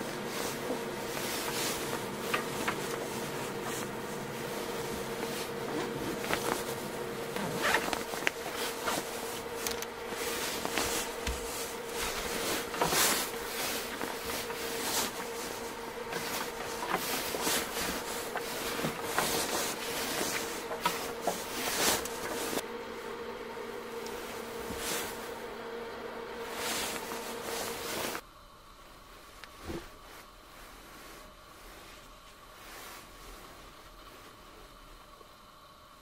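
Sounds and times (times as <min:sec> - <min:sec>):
rubbing or scraping strokes: 0:00.0 - 0:22.6, 0:24.1 - 0:25.4, 0:26.4 - 0:28.2
faint steady hum: 0:00.0 - 0:36.0.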